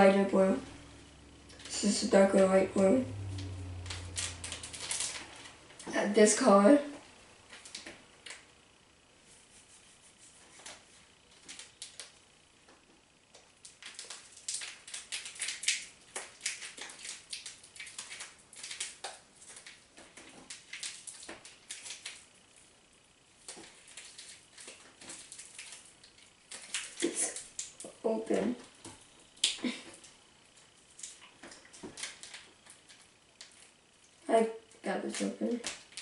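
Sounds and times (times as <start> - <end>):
plastic bag crinkling: 3.1 - 5.9, 13.6 - 22.6, 23.4 - 27.9.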